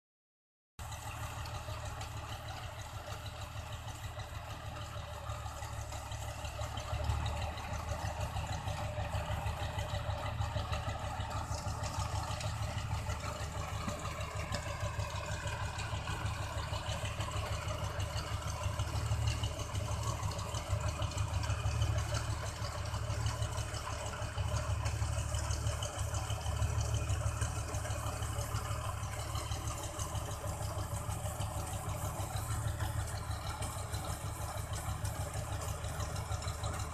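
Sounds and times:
combine harvester engine droning: 0.8 - 36.9.

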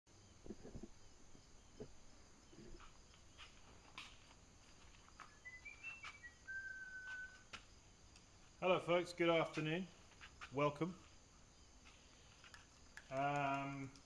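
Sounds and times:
bird chirping and whistling: 5.2 - 7.5.

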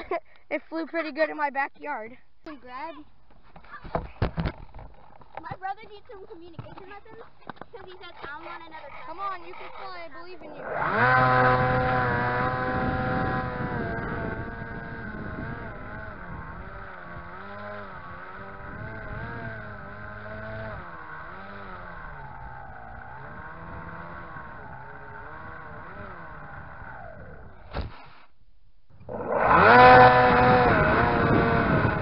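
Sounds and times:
model plane motor whine: 9.4 - 27.6, 29.0 - 32.0.

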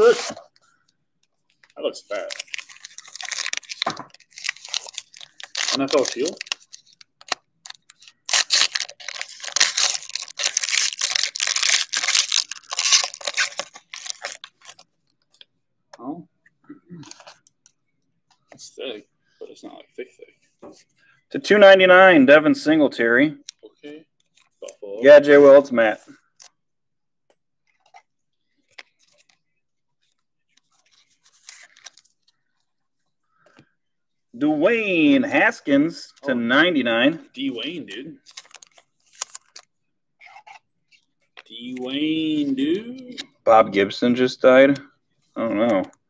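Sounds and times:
trading cards clicking and rustling: 1.2 - 15.4
foil wrapper crinkling and tearing: 1.6 - 14.9, 30.7 - 32.2, 38.2 - 39.7.

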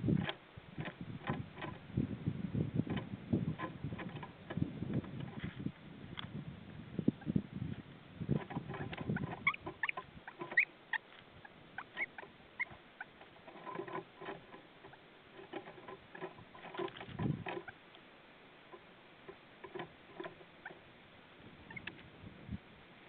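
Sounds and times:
small birds chirping: 8.2 - 16.6, 17.2 - 22.0
woodpecker pecking wood: 8.3 - 18.0
dull bumps: 11.8 - 17.7.

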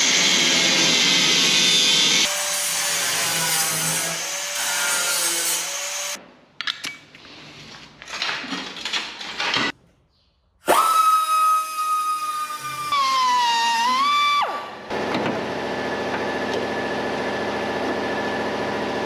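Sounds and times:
power tool on sheet metal: 0.0 - 6.2, 10.7 - 19.0.

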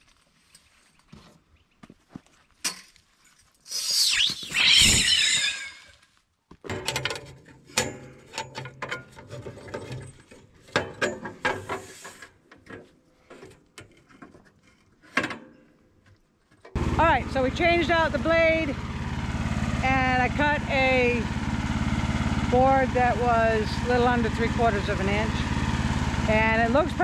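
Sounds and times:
wavering squeal: 3.7 - 6.0
metal clicks and rattles: 6.7 - 11.6.

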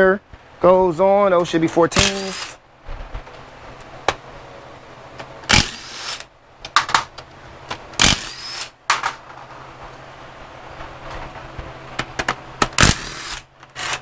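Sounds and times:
steady low hum: 0.0 - 14.0
cordless power driver spinning bolts: 2.0 - 2.6, 5.5 - 6.3, 8.0 - 8.8, 12.6 - 14.0.

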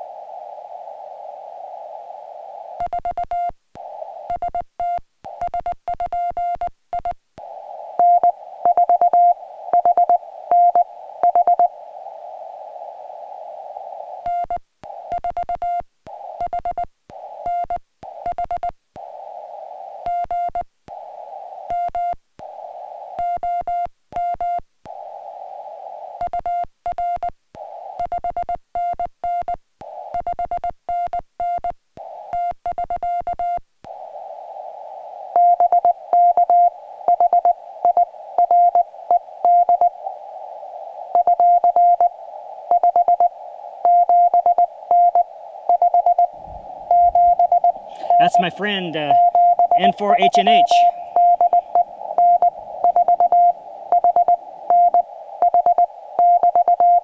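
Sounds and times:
radio receiver hiss: 0.0 - 5.9, 6.6 - 23.9, 24.8 - 28.7, 29.8 - 30.4, 32.0 - 33.1, 33.8 - 57.0
morse code beeps: 8.0 - 11.7, 35.4 - 39.9, 41.2 - 42.1, 42.7 - 46.3, 46.9 - 57.0.

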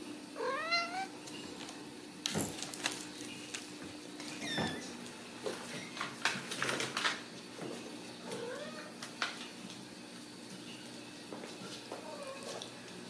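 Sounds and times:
kittens mewing: 0.4 - 1.1.

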